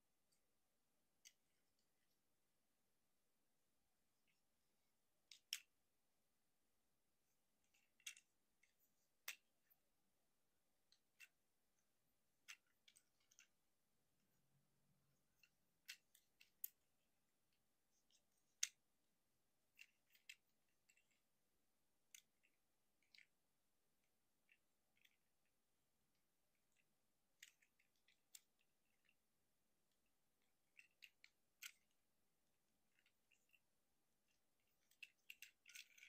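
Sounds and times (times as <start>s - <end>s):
plastic toy parts clicking: 5.2s - 5.7s, 7.6s - 9.8s, 10.8s - 11.4s, 12.3s - 13.6s, 15.2s - 16.8s, 17.9s - 18.8s, 19.6s - 21.2s, 22.0s - 23.4s, 26.6s - 29.2s, 30.0s - 32.0s, 32.8s - 33.6s, 34.3s - 36.0s.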